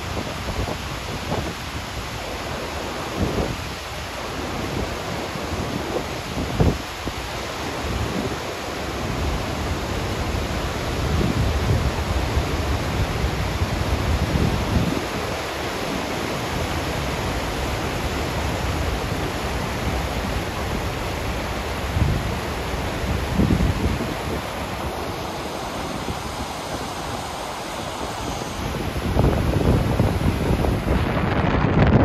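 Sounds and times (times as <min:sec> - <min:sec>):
river rapids rushing over boulders: 0:00.0 - 0:31.9
wind buffeting microphone: 0:07.8 - 0:32.0.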